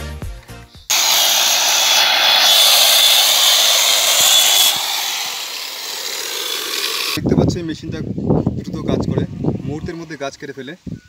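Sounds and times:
electric chainsaw cutting log: 0.9 - 7.2.

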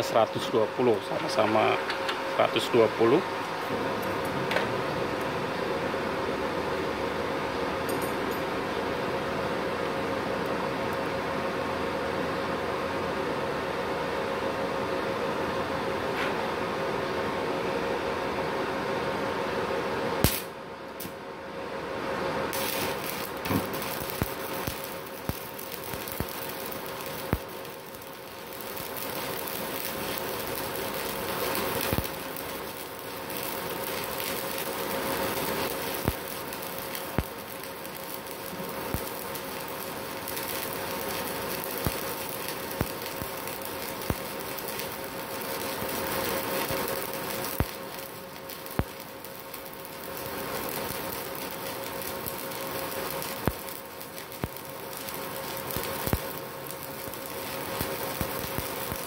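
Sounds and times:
welding arc crackling and popping: 0.0 - 7.0, 20.2 - 21.2, 22.5 - 59.0.

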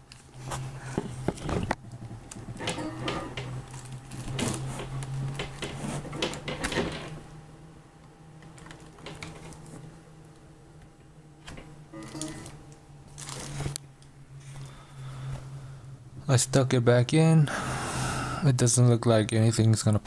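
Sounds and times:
steady low hum: 0.0 - 20.0.

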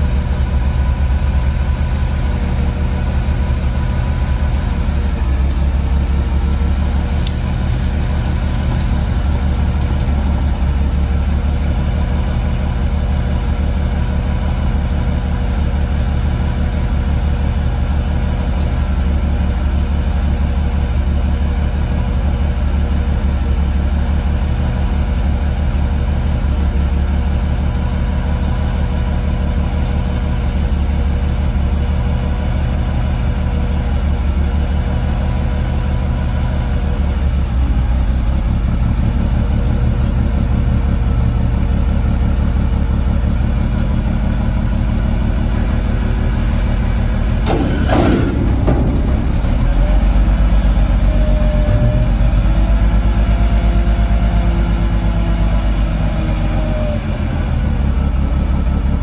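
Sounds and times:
truck engine idling: 0.0 - 59.0
hydraulics lifting under load: 43.2 - 55.2.

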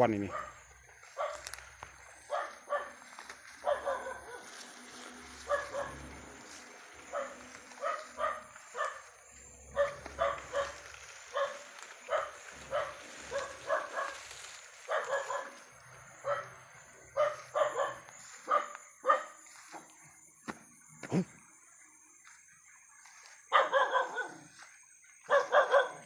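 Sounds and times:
dog barking: 0.2 - 1.6, 2.2 - 4.6, 5.4 - 6.3, 7.1 - 19.4, 23.5 - 24.6, 25.3 - 26.0.

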